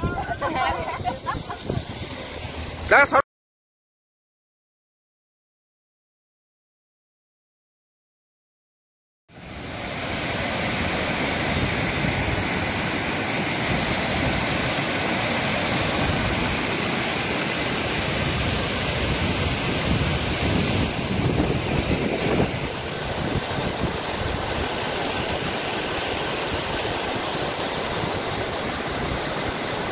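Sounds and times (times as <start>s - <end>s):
stream rushing over rocks: 0.0s - 3.0s, 9.3s - 29.9s.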